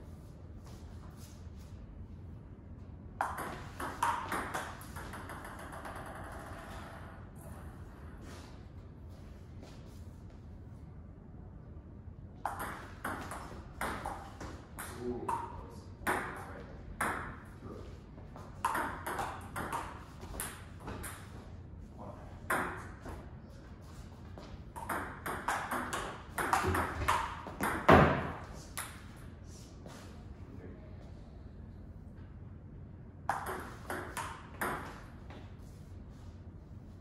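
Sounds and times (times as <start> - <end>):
table tennis ball hitting paddles: 3.2 - 6.8, 12.4 - 17.4, 18.4 - 21.4, 24.4 - 29.1, 33.3 - 35.1.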